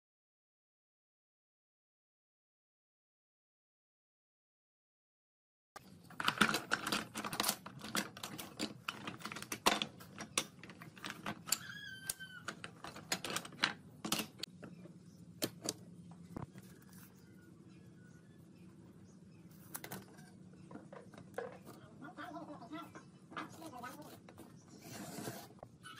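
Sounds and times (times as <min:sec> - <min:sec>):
wooden strips clacking: 0:06.1 - 0:14.7.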